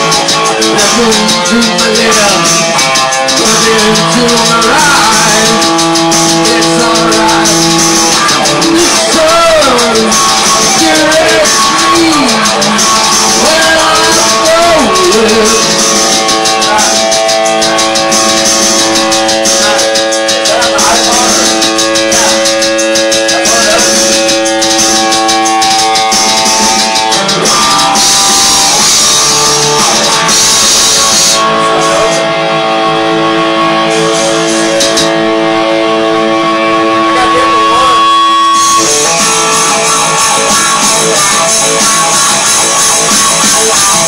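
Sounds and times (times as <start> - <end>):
electric guitar through amplifier: 0.0 - 44.0.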